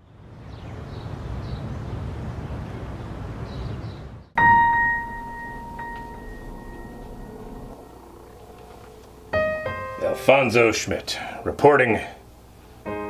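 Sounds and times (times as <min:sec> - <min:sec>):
low outdoor rumble: 0:00.0 - 0:12.9
bell-like ding: 0:04.4 - 0:08.0.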